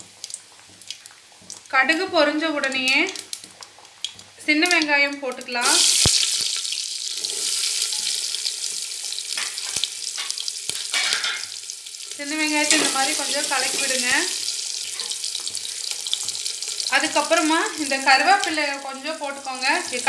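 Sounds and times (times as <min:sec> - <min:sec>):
shallots sizzling in hot oil: 0:00.0 - 0:20.0.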